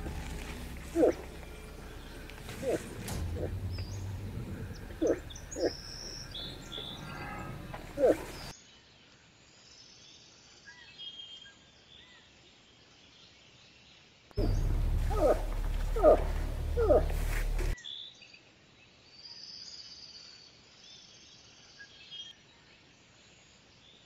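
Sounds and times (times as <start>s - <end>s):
moose calling: 0.0s - 8.5s, 14.4s - 17.8s
small birds chirping: 0.0s - 8.5s, 14.4s - 17.8s.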